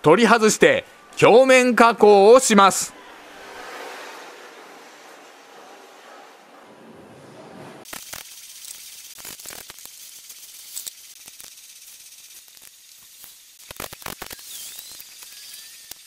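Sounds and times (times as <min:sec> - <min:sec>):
steady hiss: 0:07.9 - 0:15.6.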